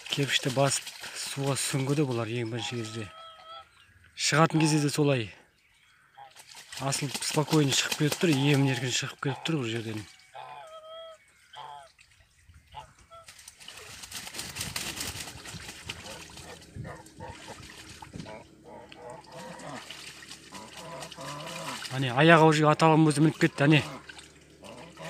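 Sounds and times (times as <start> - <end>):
water splashing and sloshing: 0.0 - 5.2, 6.1 - 25.0
goose calls: 2.5 - 3.8, 5.9 - 6.4, 10.3 - 11.9, 12.6 - 13.4, 15.9 - 22.4, 23.1 - 25.0.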